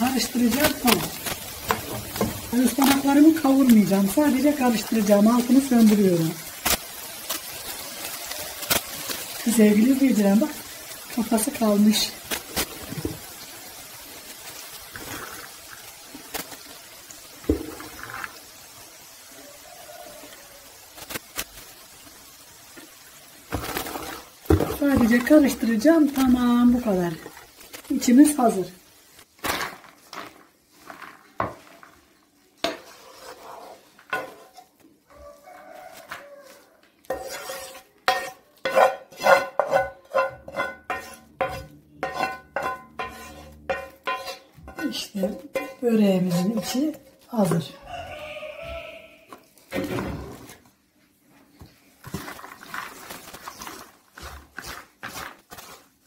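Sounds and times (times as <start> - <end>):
leafy rustling: 0.0 - 15.4, 23.4 - 56.0
frying pan hiss: 0.0 - 48.6
wooden spatula scraping a pan: 29.5 - 56.0.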